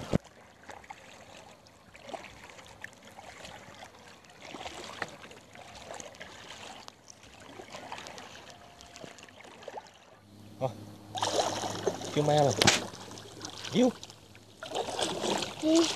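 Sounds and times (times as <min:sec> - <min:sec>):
water lapping around hull: 0:00.0 - 0:15.9
small drips and ticks: 0:05.9 - 0:10.0, 0:12.1 - 0:14.8.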